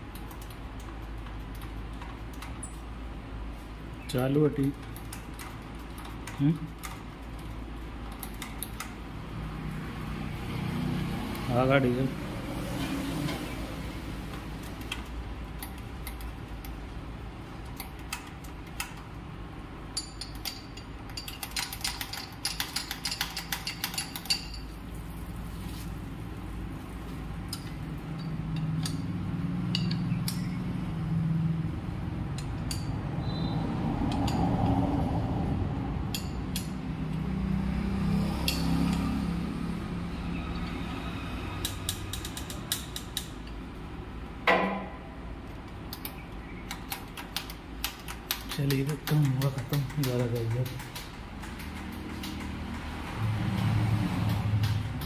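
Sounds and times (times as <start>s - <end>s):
steady low hum: 0.0s - 55.0s
metal spanner clinking: 19.9s - 24.8s, 27.5s - 30.6s, 32.3s - 33.0s, 36.1s - 36.8s, 38.5s - 39.1s
rapid ticks: 45.9s - 53.7s.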